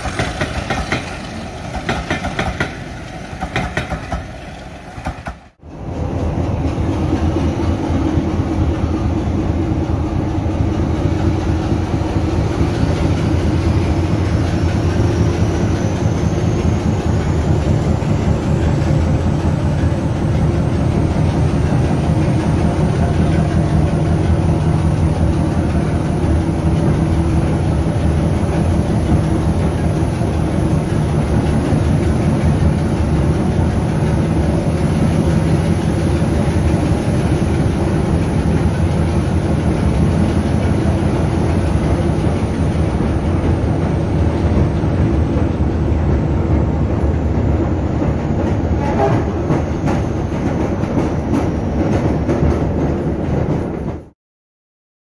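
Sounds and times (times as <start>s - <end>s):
rail-joint clicks: 0.0s - 5.5s
diesel locomotive engine under load: 0.0s - 54.1s
wheel and rail noise: 0.0s - 54.1s.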